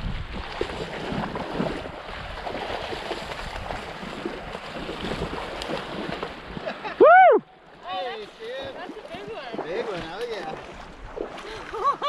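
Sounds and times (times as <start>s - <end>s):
wind on microphone: 0.0s - 6.6s
fish thrashing in water: 0.2s - 6.8s.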